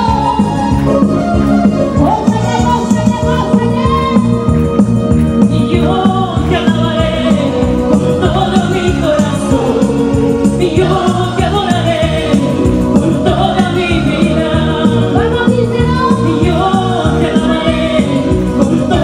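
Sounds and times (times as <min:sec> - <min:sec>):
electronic keyboard chords: 0:00.0 - 0:19.0
percussion beat: 0:00.0 - 0:19.0
man singing into microphone: 0:05.4 - 0:19.0.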